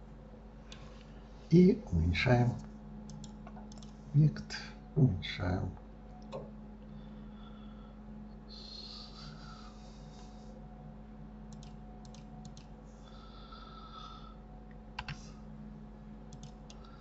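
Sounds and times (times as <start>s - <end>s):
low electrical hum: 0.0s - 17.0s
computer mouse clicks: 3.1s - 4.0s, 11.5s - 12.7s, 15.0s - 15.2s, 16.3s - 16.9s.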